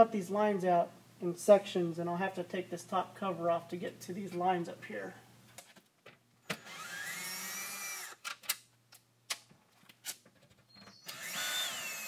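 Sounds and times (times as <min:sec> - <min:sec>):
cordless drill whine: 0:06.5 - 0:08.2, 0:10.9 - 0:12.0.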